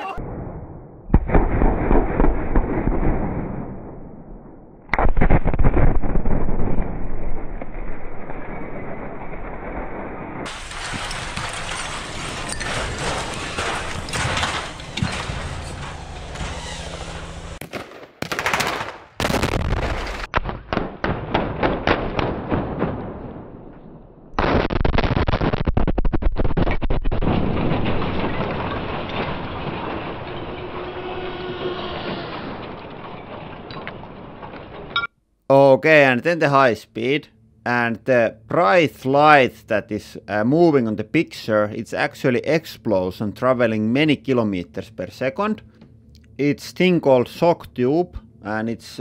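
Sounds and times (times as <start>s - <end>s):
dynamite blast: 0.2s - 7.8s, 10.4s - 23.7s
debris clattering down: 10.4s - 17.6s, 27.1s - 35.0s
rattling crackle: 10.4s - 17.6s, 26.1s - 35.0s.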